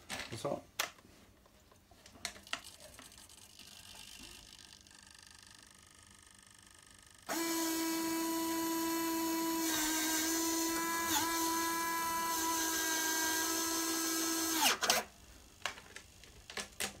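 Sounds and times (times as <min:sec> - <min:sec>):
electric actuator whining: 0:04.4 - 0:15.1.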